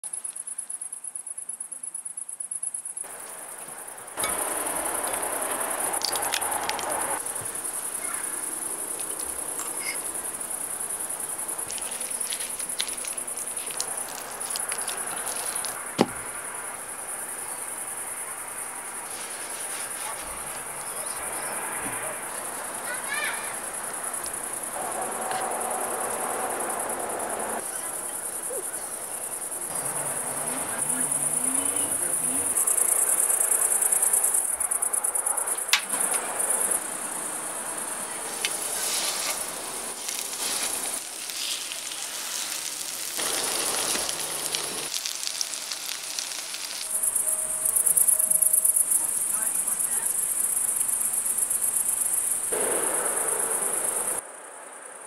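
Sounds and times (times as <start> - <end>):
crickets chirping: 0.0 - 55.0
patties sizzling in oil: 4.2 - 16.5, 38.1 - 52.6.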